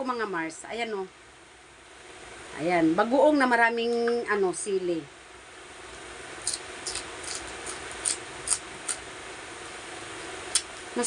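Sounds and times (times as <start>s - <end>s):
crisp chewing crunches: 6.4s - 9.0s.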